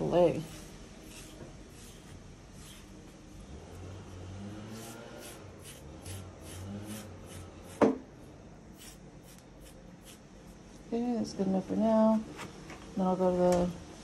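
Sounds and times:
carding knife raking through fur: 0:00.1 - 0:07.8.

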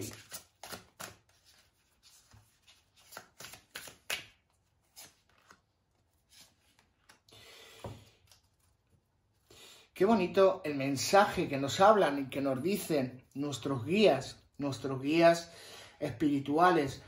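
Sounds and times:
cards being shuffled: 0:00.0 - 0:08.8
cards sliding and rustling: 0:00.0 - 0:08.8.

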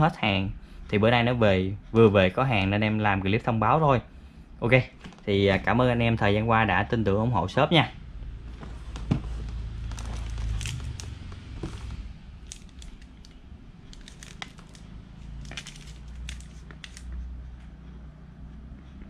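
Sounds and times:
low steady hum: 0:00.0 - 0:19.0
plastic shrink-wrap crinkling: 0:08.8 - 0:17.1.

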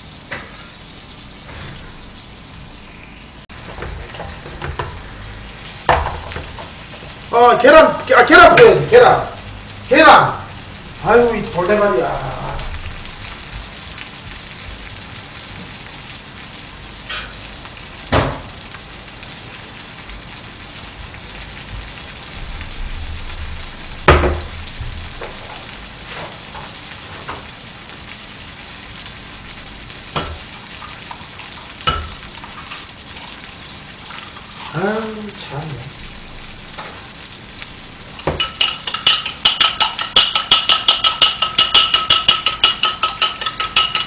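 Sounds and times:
batter sizzling in a pan: 0:00.0 - 0:44.0
bowl and utensils knocking: 0:38.2 - 0:44.0.

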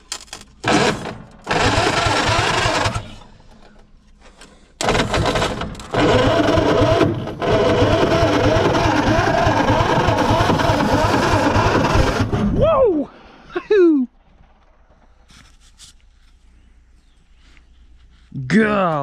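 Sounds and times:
engine starter cranking: 0:00.0 - 0:12.6.

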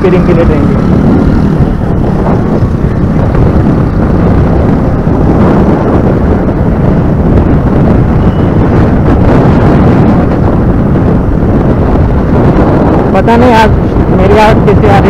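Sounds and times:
motorcycle engine: 0:00.0 - 0:15.0
road noise: 0:00.0 - 0:15.0
wind buffeting microphone: 0:00.0 - 0:15.0.

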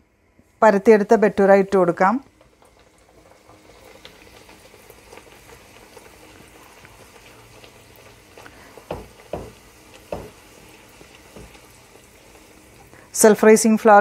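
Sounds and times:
bread sizzling in hot oil: 0:01.0 - 0:14.0
loud knocks: 0:08.9 - 0:10.4.

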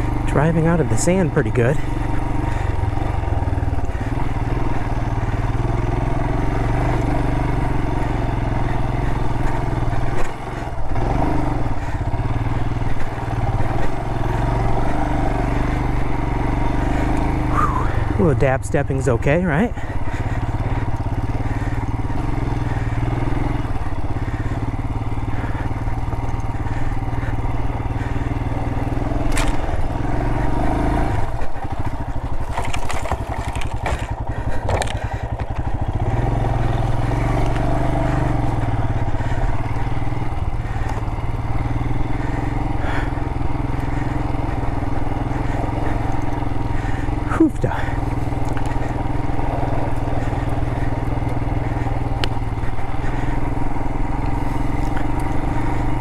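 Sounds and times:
motorcycle engine under load: 0:00.0 - 0:56.0
stones knocking: 0:32.4 - 0:34.0.

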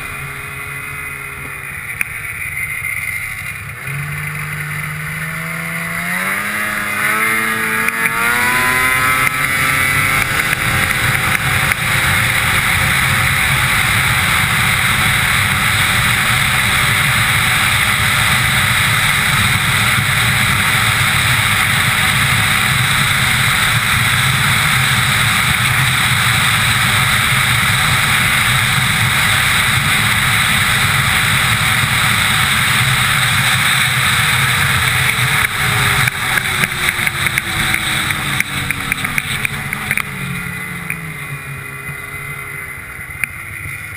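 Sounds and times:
rush of wind: 0:00.0 - 0:43.9
snowmobile engine accelerating: 0:00.0 - 0:43.9.

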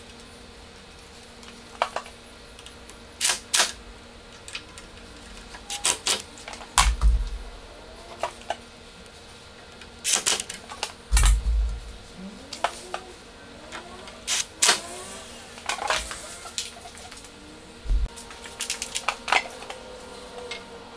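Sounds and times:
screws and metal bracket clicking: 0:14.3 - 0:16.7.

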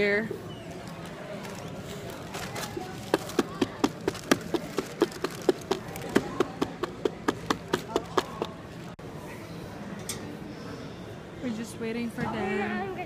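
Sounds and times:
fast sharp taps: 0:03.1 - 0:08.6.

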